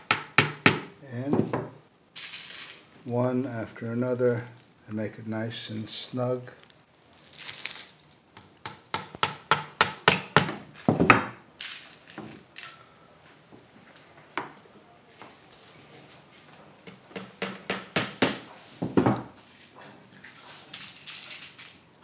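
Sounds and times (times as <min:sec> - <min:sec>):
hammer tapping pins into wood: 0:00.0 - 0:01.7, 0:16.8 - 0:19.2.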